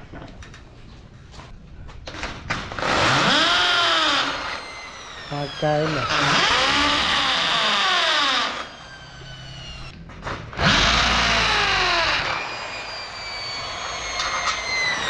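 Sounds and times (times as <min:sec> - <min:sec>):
impact drill boring into metal: 0:02.8 - 0:09.9, 0:10.6 - 0:15.0.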